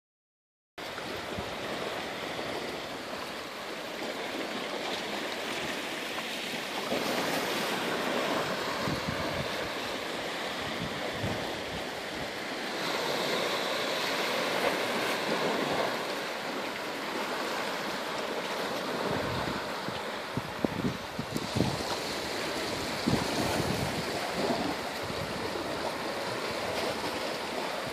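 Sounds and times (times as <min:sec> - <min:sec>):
waves washing over rocky shore: 0:00.8 - 0:27.9
wind buffeting microphone: 0:07.0 - 0:12.6, 0:18.1 - 0:27.9.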